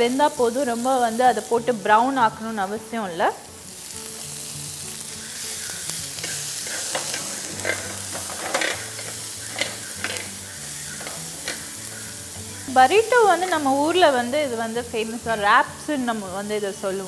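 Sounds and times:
vegetables sizzling in hot oil: 0.0 - 17.0
wooden spatula scraping a pan: 6.2 - 11.8.

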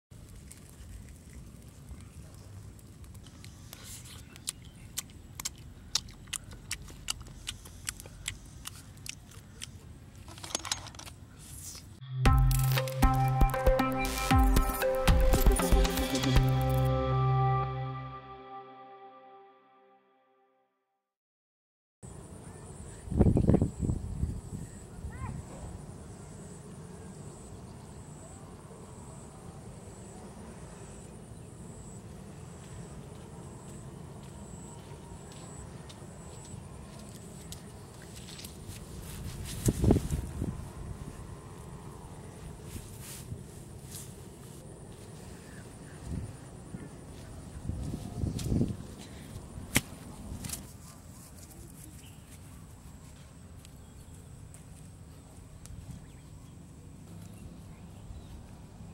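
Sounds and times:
person chewing and crunching: 0.2 - 10.3
intro music with heavy bass: 12.0 - 19.3.

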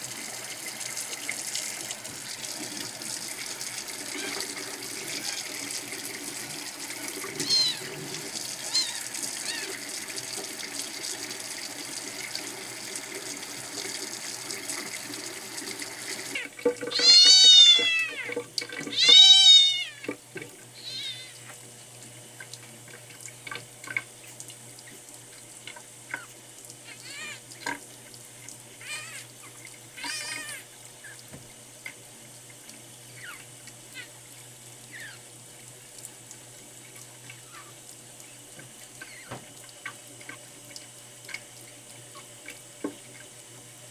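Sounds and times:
tap running into a sink: 1.2 - 8.8, 13.2 - 20.6, 31.3 - 32.0, 38.5 - 41.6, 42.2 - 43.3
kitten mewing: 7.4 - 7.9, 8.6 - 9.8, 16.9 - 18.3, 18.9 - 20.1, 20.8 - 21.4, 26.9 - 27.4, 28.8 - 29.2, 30.0 - 31.2, 33.2 - 34.1, 34.9 - 35.2.

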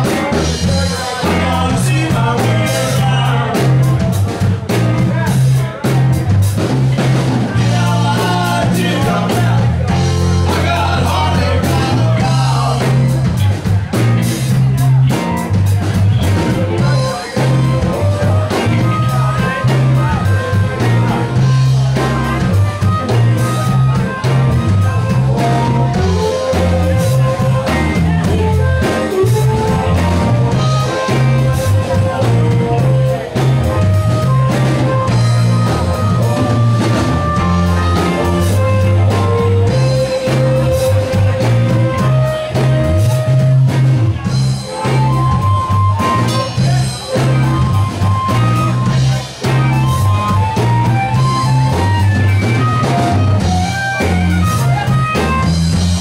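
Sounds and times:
person singing: 0.0 - 6.0, 7.5 - 13.6
bass line: 0.0 - 56.0
drums: 0.0 - 56.0
electric guitar: 0.0 - 56.0.

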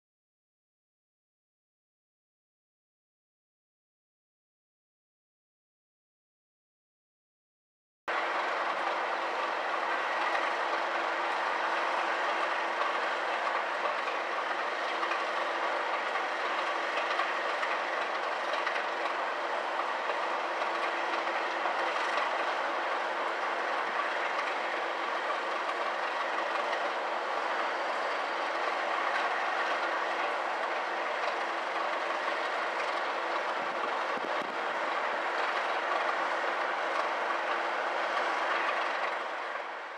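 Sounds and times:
diesel locomotive engine: 8.1 - 39.9
wheels on rails: 8.1 - 39.9.

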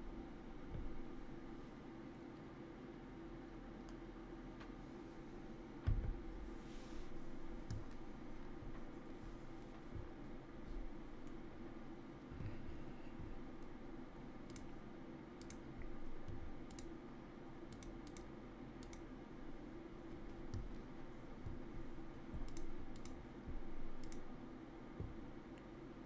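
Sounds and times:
steady low hum: 0.0 - 26.0
computer clicks: 14.4 - 14.8, 15.4 - 17.0, 17.7 - 19.1, 22.4 - 23.3, 23.9 - 24.3.

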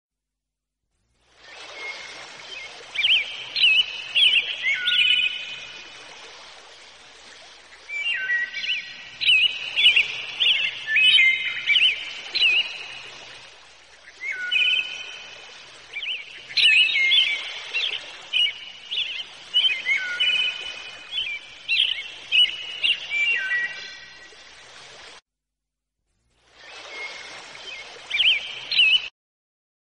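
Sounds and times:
birds chirping: 1.8 - 5.9, 7.4 - 24.4, 26.8 - 29.1.

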